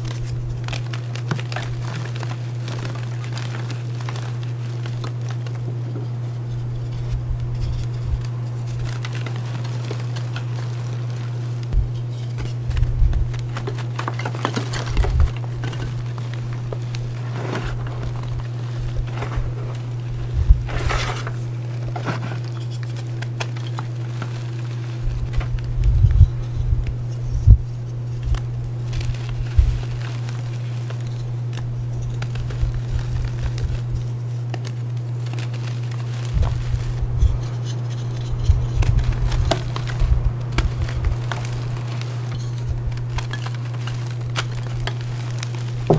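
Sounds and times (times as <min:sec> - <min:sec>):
low hum: 0:00.0 - 0:34.4, 0:36.0 - 0:45.9
chalk crunching by hand: 0:00.0 - 0:45.9.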